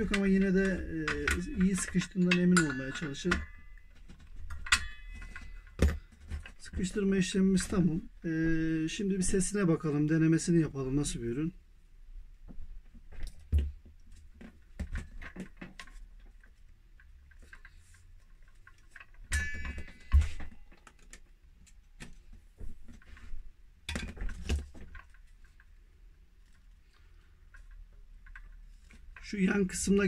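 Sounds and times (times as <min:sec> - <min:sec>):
saw handling clicks and knocks: 0:00.0 - 0:08.0, 0:13.2 - 0:25.8.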